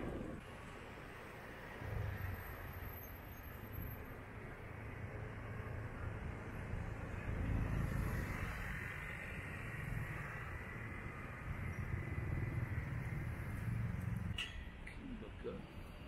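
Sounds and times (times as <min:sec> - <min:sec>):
vehicle engines passing: 0:00.0 - 0:16.0.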